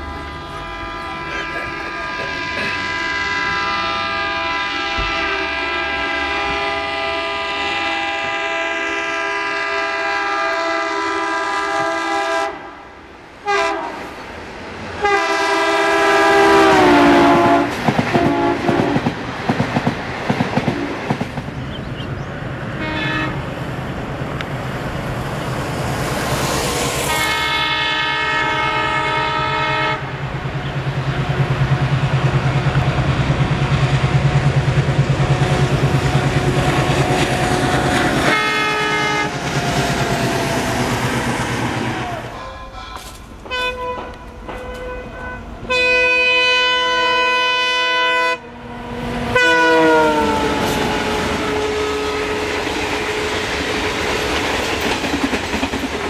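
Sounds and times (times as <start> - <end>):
train wheels clacking on rails: 0.0 - 3.9, 16.6 - 22.0, 29.5 - 45.7, 49.8 - 56.0
diesel locomotive horn blasts: 0.0 - 12.8, 13.4 - 14.1, 15.0 - 19.1, 22.7 - 23.6, 27.0 - 30.2, 35.2 - 41.2, 41.8 - 54.0.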